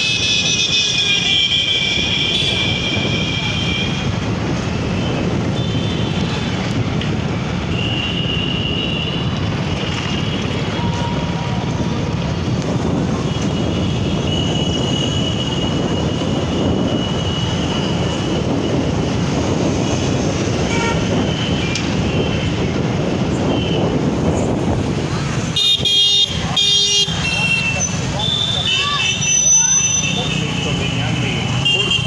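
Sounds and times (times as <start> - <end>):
traffic and riding noise: 0.0 - 32.0.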